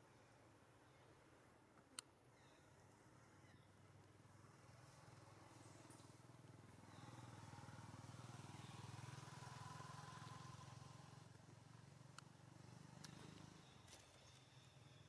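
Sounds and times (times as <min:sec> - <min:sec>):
light tick: 0:12.1 - 0:12.4, 0:13.0 - 0:13.5.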